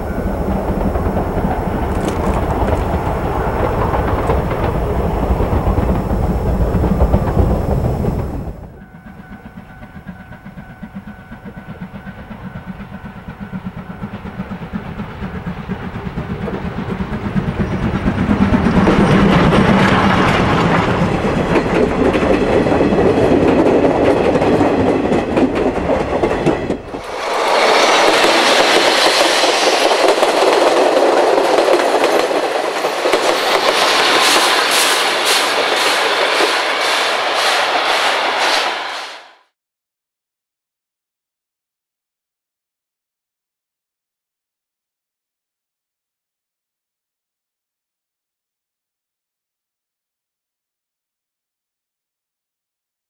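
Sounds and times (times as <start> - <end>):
wheels clattering over rail joints: 0.0 - 8.7, 16.1 - 38.4
steam locomotive exhaust beats: 0.0 - 39.5
steam locomotive passing: 0.0 - 39.6.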